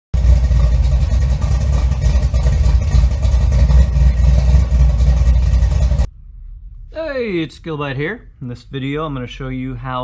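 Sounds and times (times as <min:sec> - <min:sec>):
car engine running: 0:00.1 - 0:06.1.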